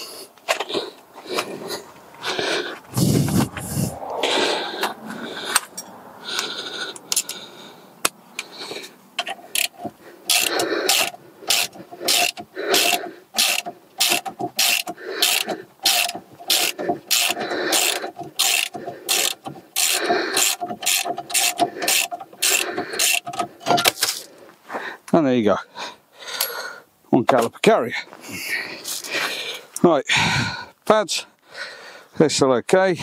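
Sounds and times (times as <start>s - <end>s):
socket ratchet clicking: 9.2s - 24.0s
socket scraping on bolt: 9.2s - 24.2s.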